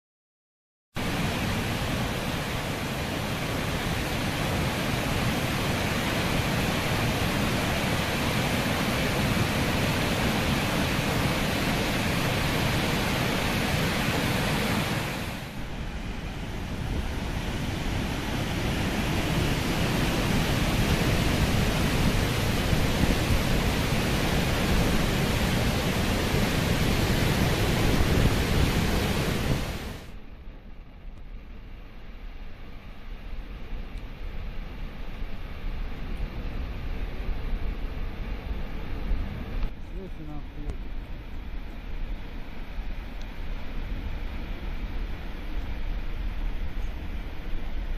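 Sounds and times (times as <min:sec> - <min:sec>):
water rushing over spillway: 0:01.0 - 0:30.2.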